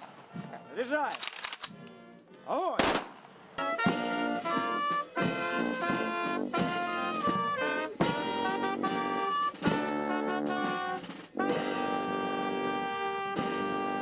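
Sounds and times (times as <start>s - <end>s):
brass band playing held chords: 3.5s - 14.0s.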